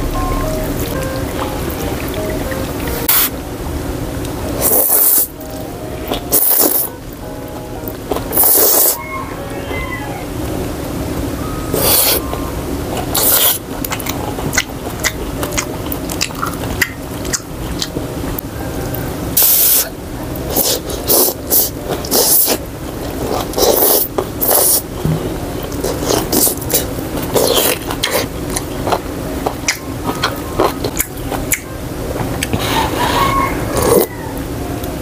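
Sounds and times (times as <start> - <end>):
slurping noodles and broth: 4.6 - 5.3, 8.3 - 9.0, 13.1 - 13.6, 20.5 - 24.9, 25.7 - 28.3, 33.8 - 34.1
wet chewing: 13.0 - 18.0, 20.4 - 31.7.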